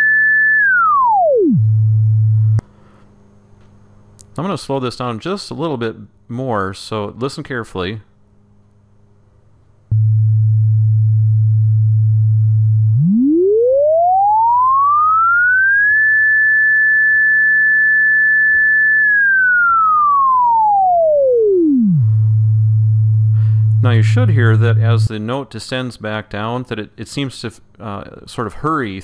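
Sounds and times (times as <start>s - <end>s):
sine tone sweeping in pitch: 0.0s - 2.6s, 9.9s - 25.1s
click: 3.6s - 4.4s.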